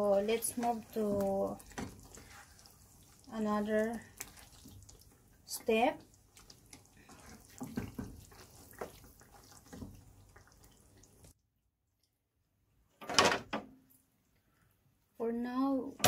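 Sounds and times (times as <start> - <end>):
spatula scraping frying pan: 0.0 - 5.1, 6.2 - 10.9
faint watery sizzle: 0.0 - 11.4.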